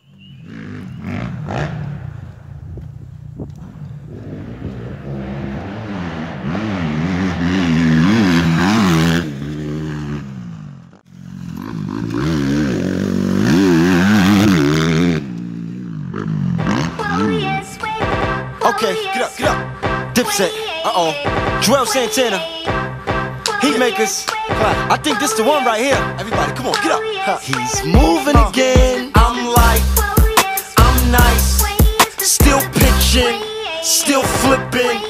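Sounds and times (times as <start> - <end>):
motocross bike engine revving: 0.1 - 18.6, 27.6 - 33.3.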